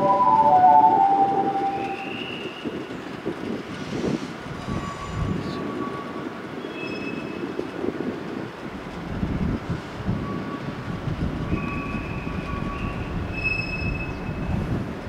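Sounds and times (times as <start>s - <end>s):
station departure melody: 0.0s - 2.9s
electric train rumbling: 0.0s - 15.0s.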